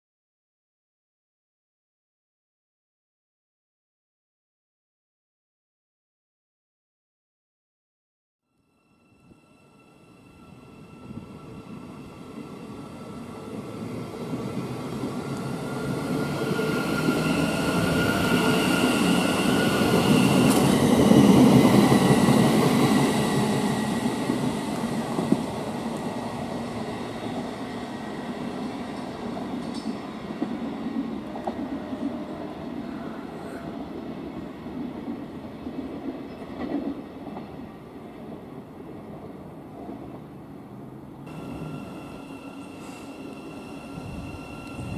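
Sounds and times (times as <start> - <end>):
train wheels rumbling on rail: 10.8 - 44.9.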